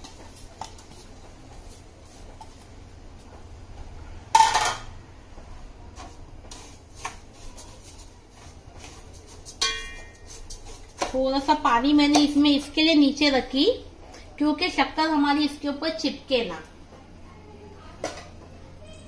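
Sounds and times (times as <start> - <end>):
metal clank on cooking pot: 9.6 - 10.2
ladle clinking in pot: 9.6 - 10.3.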